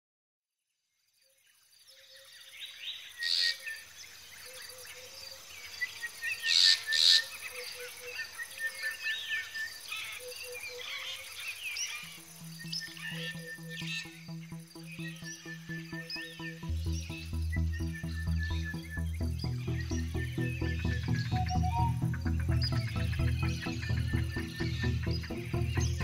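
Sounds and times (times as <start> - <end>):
birds chirping and calling: 10.8 - 26.0
low music notes: 12.0 - 26.0.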